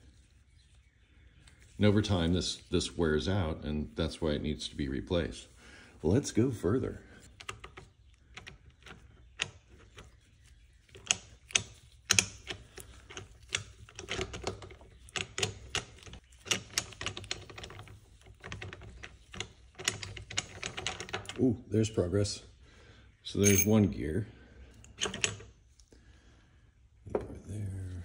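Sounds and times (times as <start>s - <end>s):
metal gears clicking and clinking: 23.4s - 23.7s.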